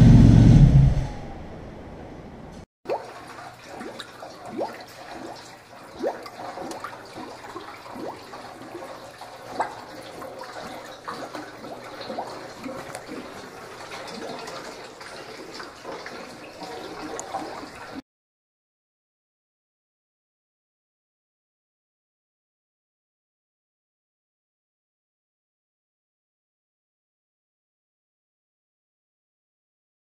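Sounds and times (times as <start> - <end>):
oil splashing into funnel: 2.9 - 18.0.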